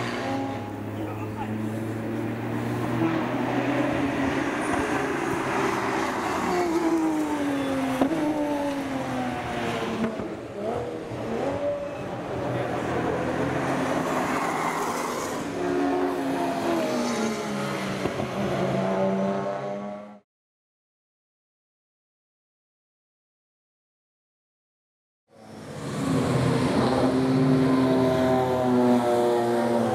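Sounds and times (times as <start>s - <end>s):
racing car engines: 0.0s - 20.2s, 25.3s - 29.9s.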